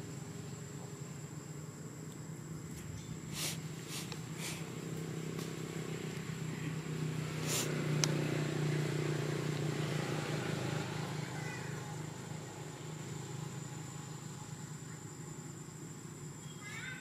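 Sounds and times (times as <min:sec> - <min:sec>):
low engine hum: 0:00.0 - 0:16.6
rustling: 0:02.7 - 0:04.8.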